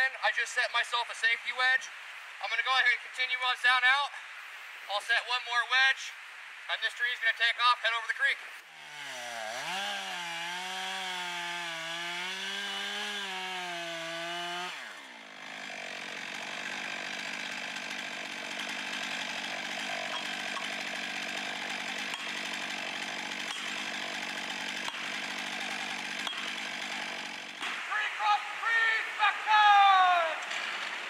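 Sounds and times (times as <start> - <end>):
chainsaw cutting wood: 8.6 - 29.0, 30.2 - 31.0.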